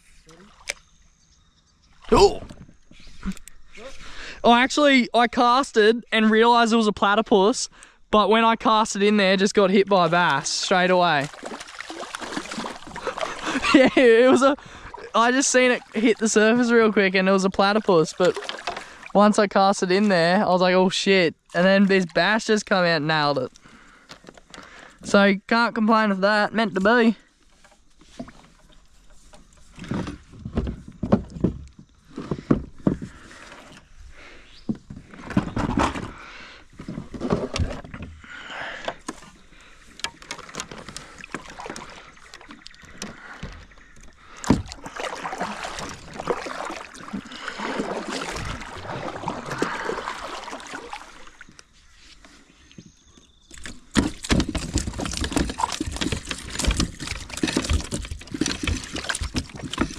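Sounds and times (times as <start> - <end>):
water splashing and sloshing: 0.0 - 1.2, 8.6 - 25.2, 26.2 - 59.9
handling knocks and rustles: 27.5 - 33.9, 53.5 - 59.9.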